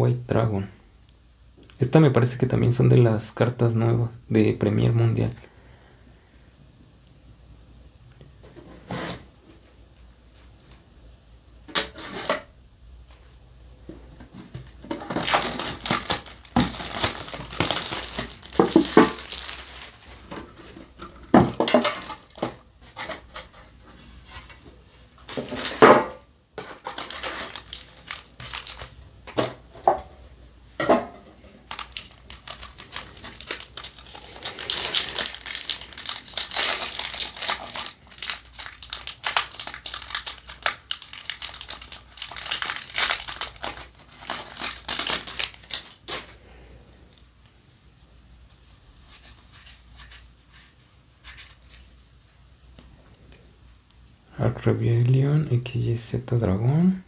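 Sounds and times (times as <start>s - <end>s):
foil pack crinkling: 14.4s - 20.4s, 21.5s - 23.2s, 26.6s - 29.0s, 31.6s - 46.4s
plastic wrap crinkling and tearing: 14.5s - 20.4s, 21.4s - 23.2s, 26.6s - 29.0s, 31.6s - 46.4s.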